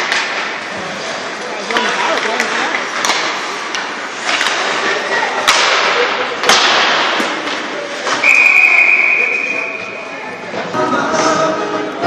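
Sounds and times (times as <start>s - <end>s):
hockey sticks cracking on puck: 0.0s - 8.3s.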